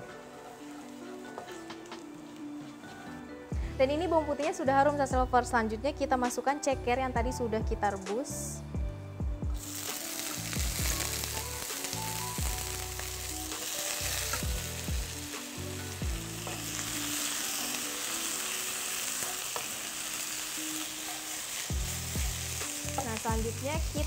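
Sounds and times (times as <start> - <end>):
food sizzling in hot oil: 0.0 - 2.4, 9.6 - 24.0.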